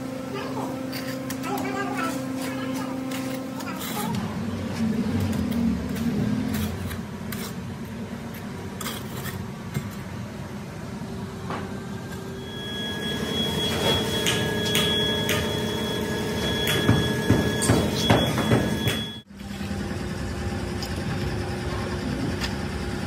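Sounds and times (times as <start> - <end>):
thin high whine: 12.0 - 20.7.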